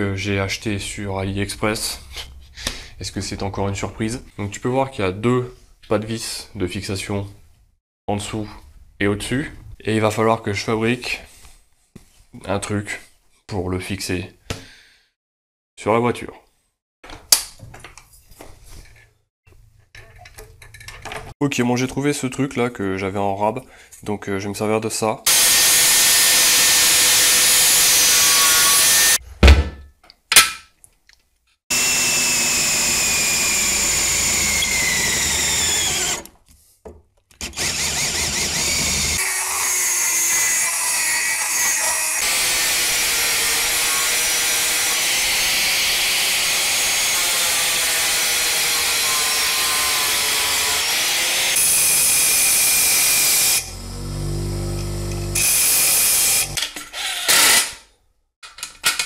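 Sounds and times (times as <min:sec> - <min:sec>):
angle grinder cutting steel: 0:25.3 - 0:29.2, 0:31.7 - 0:36.2, 0:37.4 - 0:57.8
rotary tool grinding steel: 0:25.3 - 0:29.2, 0:31.7 - 0:36.2, 0:37.4 - 0:57.7.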